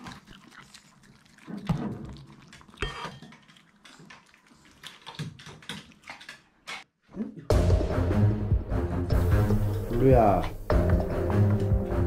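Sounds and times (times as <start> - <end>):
dog claws clicking on wood: 4.6 - 6.9
loud background music: 7.5 - 12.0.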